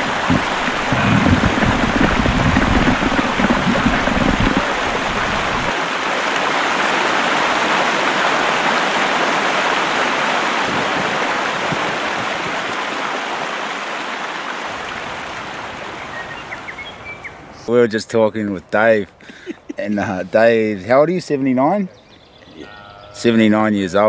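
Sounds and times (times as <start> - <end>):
river rapid rushing whitewater: 0.0 - 16.0.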